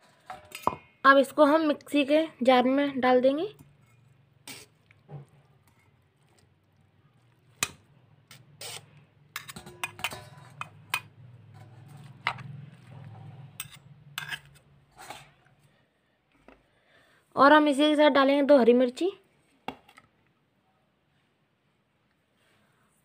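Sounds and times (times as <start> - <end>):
steel utensils clinking: 7.6 - 12.4.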